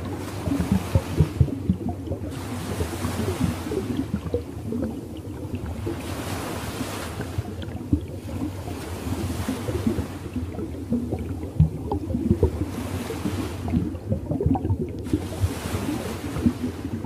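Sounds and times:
waves washing in: 0.0 - 17.0.

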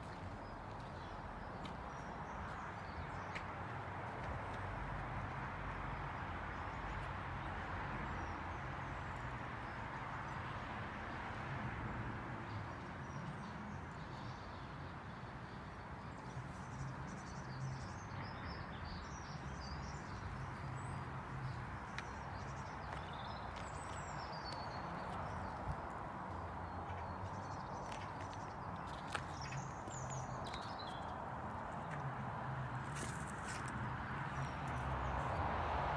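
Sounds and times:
outdoor background rush: 0.0 - 35.9
small birds chirping: 15.4 - 32.0.

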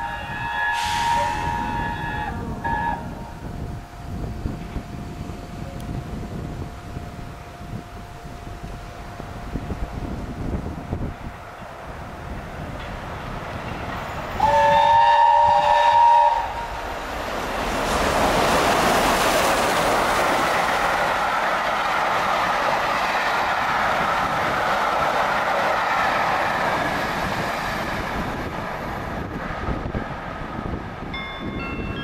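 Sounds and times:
steam locomotive whistle: 0.0 - 3.6, 14.4 - 16.8
steam exhaust rushing: 0.0 - 6.6, 11.9 - 31.1
train wheels on rail: 0.0 - 32.0.

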